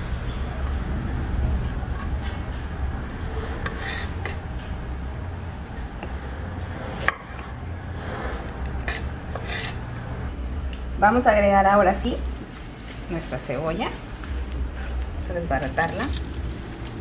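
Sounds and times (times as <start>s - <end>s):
knife slicing and scraping on board: 3.6s - 4.4s, 8.2s - 9.8s.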